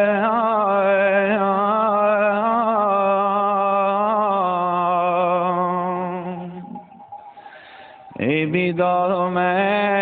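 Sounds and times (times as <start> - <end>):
man singing folk song: 8.1 - 10.0.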